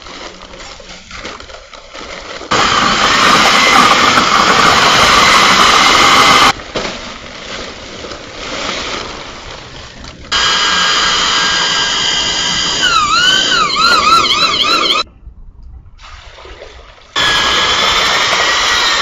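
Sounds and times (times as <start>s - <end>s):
electric drill mixer whining: 2.5s - 6.6s, 10.4s - 15.0s, 17.2s - 19.0s.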